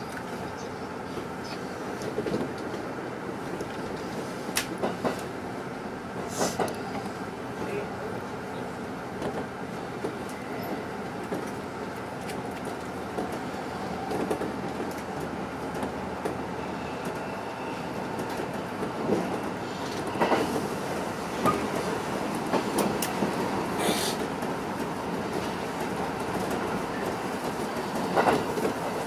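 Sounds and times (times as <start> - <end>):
train wheels and motors rumbling: 0.0 - 29.0
train wheels clacking: 4.6 - 5.3, 25.3 - 29.0.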